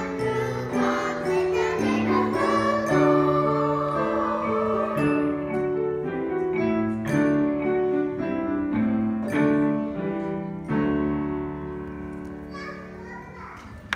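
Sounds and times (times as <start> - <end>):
children's choir singing: 0.0 - 6.2
piano: 0.0 - 13.9.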